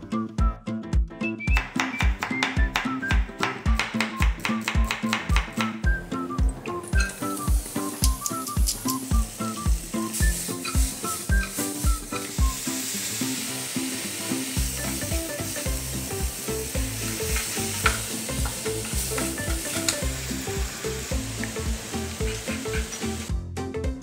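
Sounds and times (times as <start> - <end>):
light background music: 0.0 - 24.0
vegetables sizzling in hot oil: 6.9 - 23.3.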